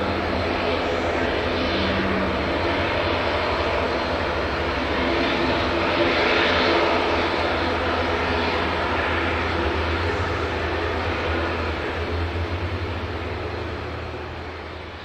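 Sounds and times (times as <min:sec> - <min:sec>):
jet engines rushing: 0:00.0 - 0:15.0.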